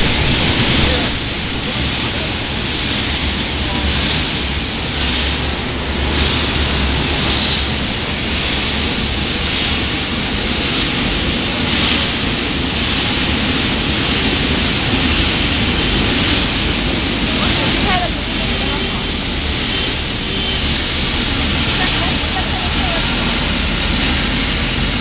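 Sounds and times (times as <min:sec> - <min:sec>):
low motor hum: 0:00.0 - 0:02.7
loud steady rushing noise: 0:00.0 - 0:25.0.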